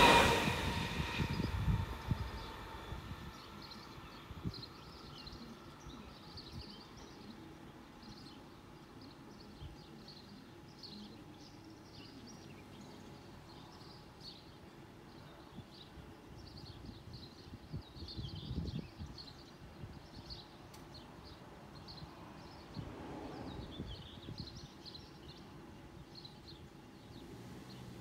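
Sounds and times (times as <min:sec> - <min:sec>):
passing train: 0:00.0 - 0:06.6, 0:21.4 - 0:25.4
outdoor background noise: 0:00.0 - 0:28.0
small birds chirping: 0:03.3 - 0:28.0.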